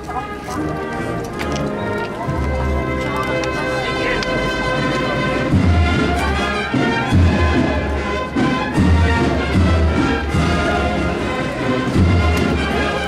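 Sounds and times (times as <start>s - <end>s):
brass band playing a march: 0.0s - 13.0s
deep drum beat: 5.2s - 12.9s.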